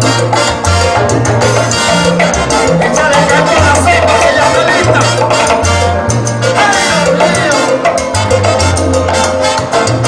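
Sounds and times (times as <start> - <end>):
live salsa band playing: 0.0 - 10.0
trombone: 0.0 - 10.0
trumpets: 0.0 - 10.0.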